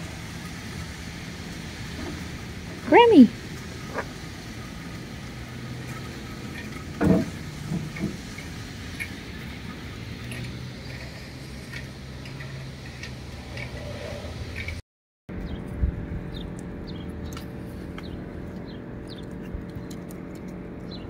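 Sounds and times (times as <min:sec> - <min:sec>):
road traffic hum: 0:00.0 - 0:21.0.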